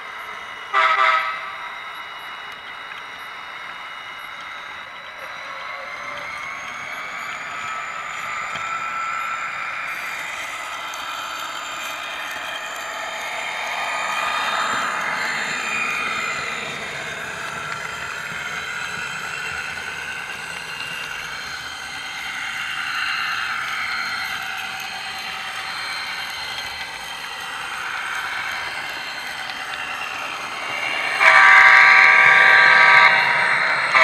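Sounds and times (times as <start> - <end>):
model train whirring: 0.0 - 34.0.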